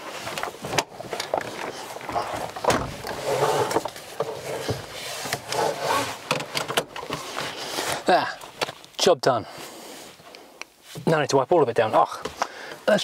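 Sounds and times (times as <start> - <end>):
seatbelt being drawn out: 0.0 - 8.1
rustling and creaking of car seat: 0.0 - 13.0.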